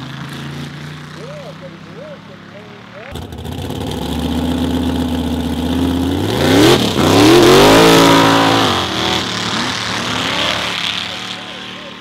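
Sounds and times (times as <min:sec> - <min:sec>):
drag car engine revving: 0:02.6 - 0:12.0.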